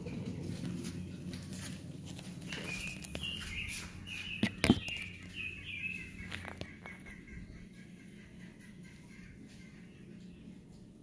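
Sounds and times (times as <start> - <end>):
low steady hum: 0.0 - 11.0
bird chirping: 2.3 - 11.0.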